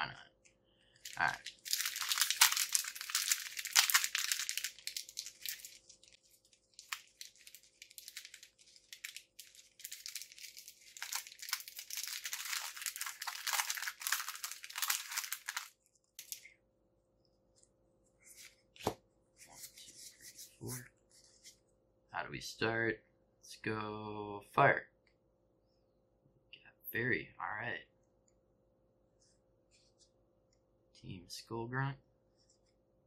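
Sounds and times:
foil wrapper crinkling and tearing: 0:01.0 - 0:16.5.

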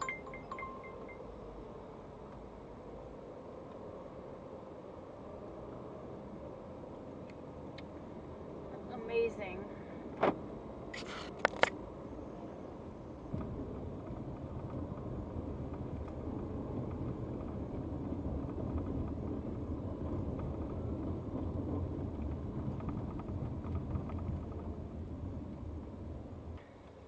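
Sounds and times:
car engine rumble: 0:00.0 - 0:27.0
tyre road noise: 0:00.0 - 0:27.0.

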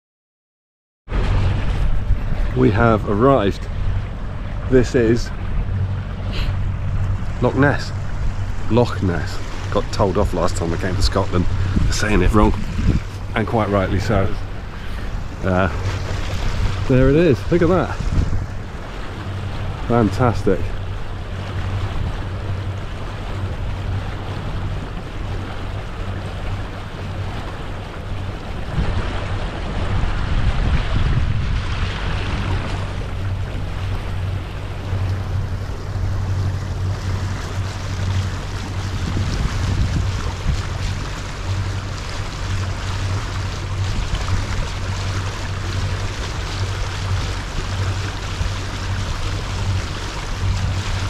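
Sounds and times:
boat engine humming: 0:01.1 - 0:51.0
water rushing: 0:01.1 - 0:51.0
wind rushing: 0:05.3 - 0:19.8, 0:28.6 - 0:33.8, 0:38.7 - 0:40.9.

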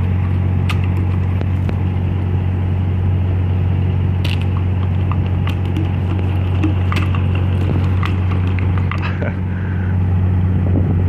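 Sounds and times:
plastic bottle crackling: 0:00.0 - 0:01.7, 0:04.2 - 0:09.1
low mechanical hum: 0:00.0 - 0:11.0.

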